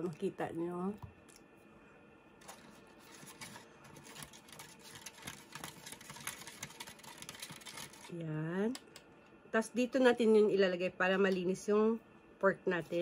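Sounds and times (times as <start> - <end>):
plastic spoon scraping plastic tray: 2.4 - 8.1.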